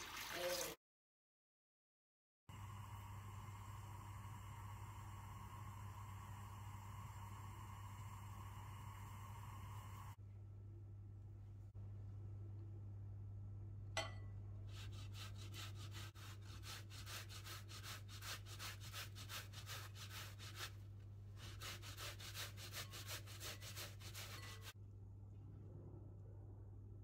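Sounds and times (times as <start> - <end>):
potato grating on metal grater: 14.7 - 24.8.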